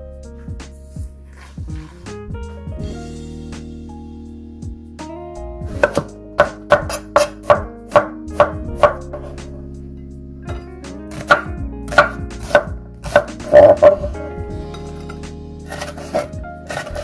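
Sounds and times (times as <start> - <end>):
knife chopping on wooden board: 5.7 - 9.4, 10.5 - 14.2, 15.7 - 17.0.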